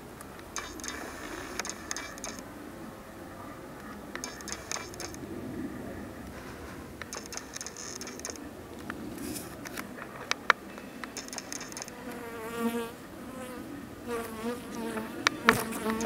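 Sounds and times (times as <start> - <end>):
bees buzzing: 0.0 - 3.2, 6.8 - 16.0
sharp clicks: 0.2 - 2.5, 3.8 - 5.3, 7.0 - 12.2
bee flying close: 11.9 - 16.0.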